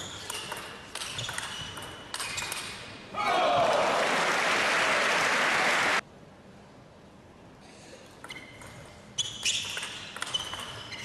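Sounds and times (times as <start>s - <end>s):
applause: 3.7s - 6.0s
short high squeaks: 8.2s - 11.0s.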